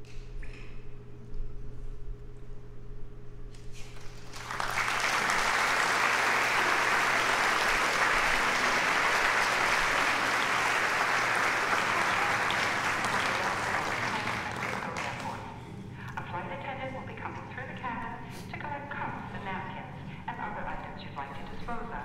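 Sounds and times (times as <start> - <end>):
audience applauding: 4.0 - 15.5.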